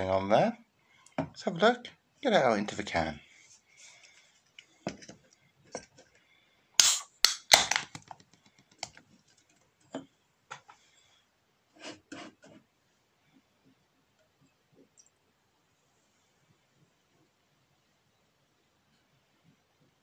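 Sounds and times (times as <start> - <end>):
can ring pull cracking open: 6.8 - 7.9.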